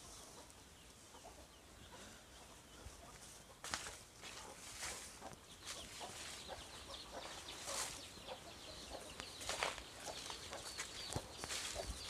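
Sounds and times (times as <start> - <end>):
chickens clucking: 0.0 - 12.0
chicks peeping: 0.0 - 12.0
footsteps on dry leaves: 3.2 - 8.1, 9.4 - 12.0.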